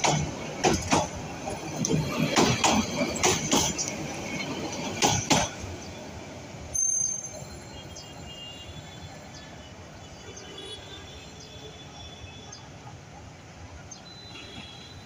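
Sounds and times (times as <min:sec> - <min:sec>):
train wheels clacking over rail joints: 0:00.0 - 0:05.7
train rumble: 0:00.0 - 0:07.7.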